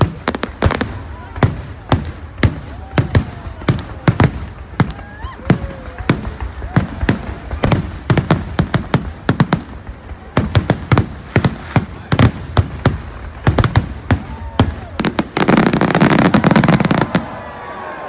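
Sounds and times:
fireworks bangs: 0:00.0 - 0:18.0.

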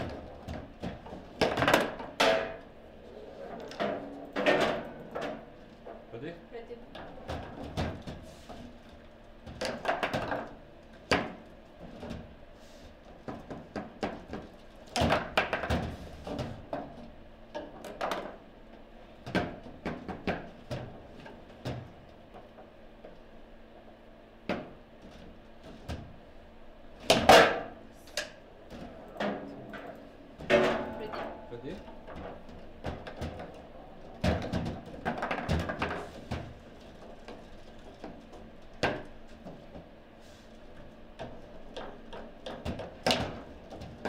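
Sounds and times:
table football knocks and clacks: 0:32.0 - 0:39.9, 0:41.2 - 0:44.0.

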